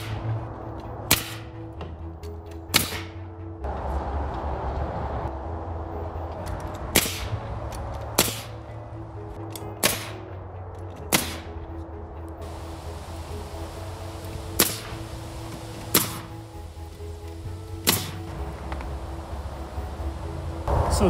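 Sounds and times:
nail gun shots: 1.1 - 1.5, 2.7 - 3.2, 6.9 - 7.3, 8.2 - 8.6, 9.8 - 10.2, 11.1 - 11.5, 14.6 - 14.9, 15.9 - 16.3, 17.8 - 18.2
low hum: 3.3 - 21.0.

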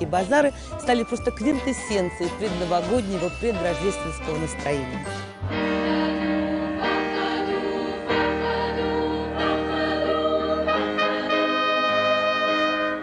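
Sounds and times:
choir singing held chords: 5.1 - 13.0.

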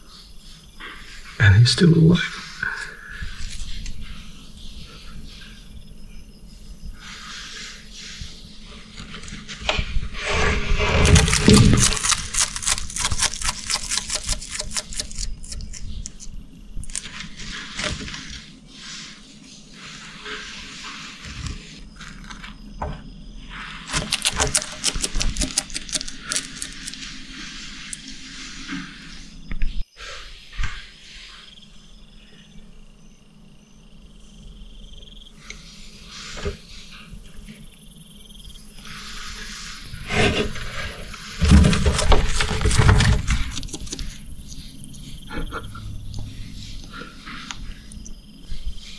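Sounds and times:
insect crackling as it is crunched: 11.0 - 17.5, 23.9 - 28.0
high-pitched insect trill: 21.8 - 48.9.

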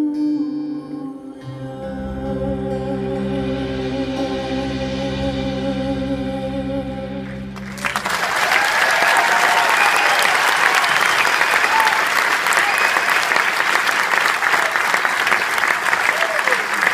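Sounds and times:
audience applause: 7.6 - 16.9.

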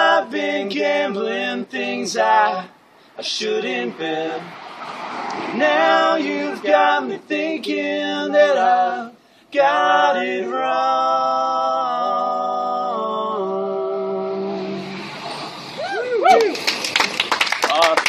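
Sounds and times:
men singing in harmony: 0.0 - 4.6, 5.4 - 15.0.

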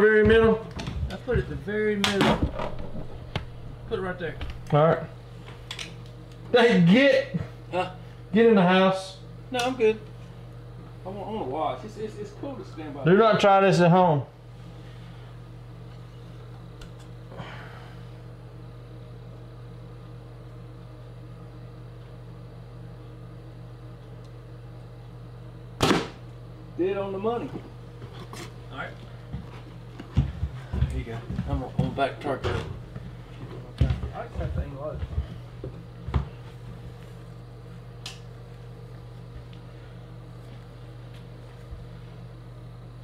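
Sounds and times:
steady low hum: 0.0 - 43.0
sharp snap: 25.8 - 26.3.

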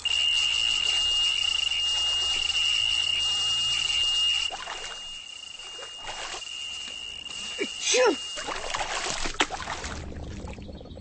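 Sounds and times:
spinning reel buzzing: 0.0 - 8.5.

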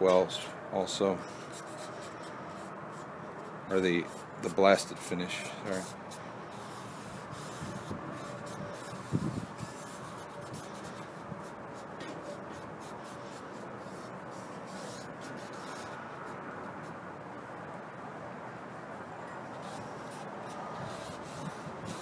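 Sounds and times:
lens wipe rubbing on steel: 1.2 - 3.1.

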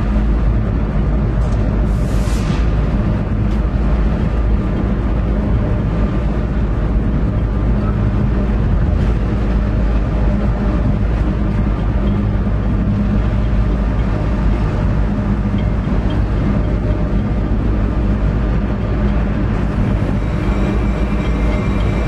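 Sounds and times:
diesel locomotive engine running: 0.0 - 22.0.

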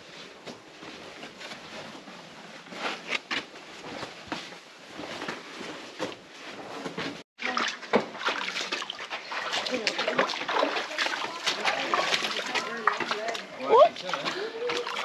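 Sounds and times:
splashing in shallow water: 7.4 - 15.0.

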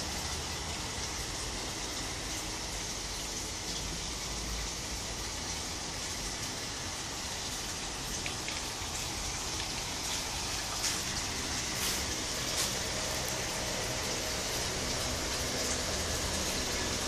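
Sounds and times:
water hissing: 6.2 - 17.0.

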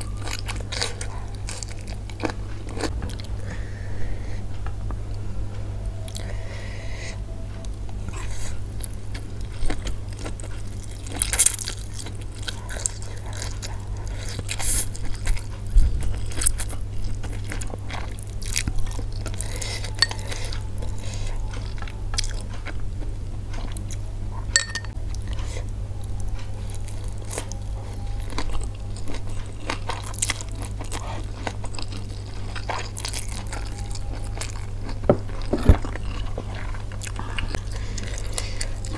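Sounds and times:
person chewing noodles: 0.0 - 3.4, 6.0 - 6.4, 7.6 - 38.9
steady low hum: 0.0 - 38.9.

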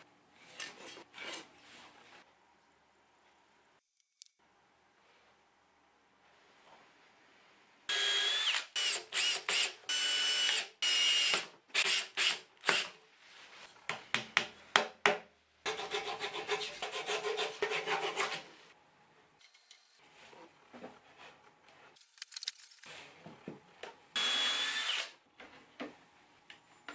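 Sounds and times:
cordless drill whining: 7.9 - 12.9, 24.2 - 25.2.

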